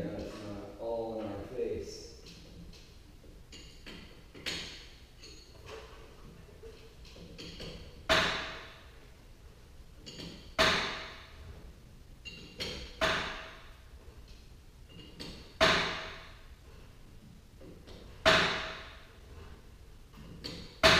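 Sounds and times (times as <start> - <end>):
faint metal taps and clinks: 12.2 - 12.9.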